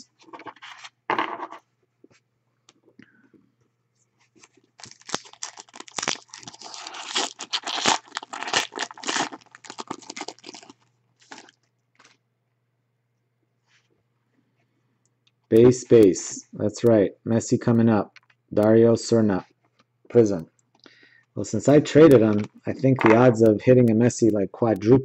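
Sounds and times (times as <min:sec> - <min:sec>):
foil pack crackling and tearing: 0:04.8 - 0:12.1.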